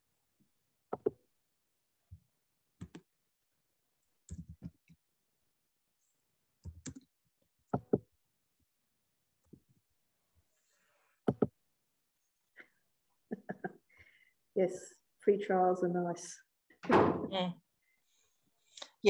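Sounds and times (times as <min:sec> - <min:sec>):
keyboard and mouse clicks: 0:00.9 - 0:01.2, 0:02.8 - 0:03.1, 0:04.3 - 0:05.0, 0:06.6 - 0:07.1, 0:07.7 - 0:08.1, 0:11.3 - 0:11.6.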